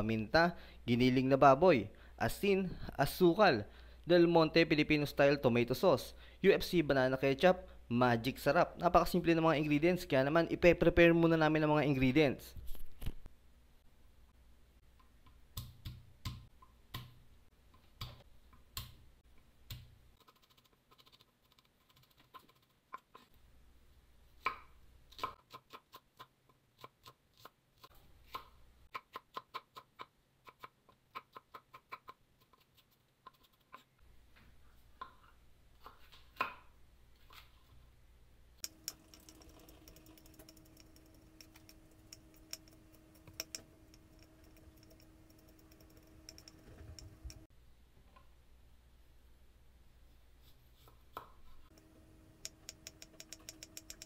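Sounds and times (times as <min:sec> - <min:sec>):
faint steady hum: 0:36.6 - 0:54.0.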